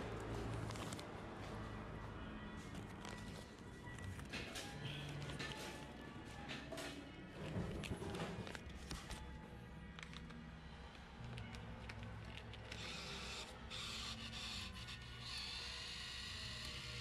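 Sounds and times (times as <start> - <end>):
bill acceptor motor whirring: 12.6 - 17.0.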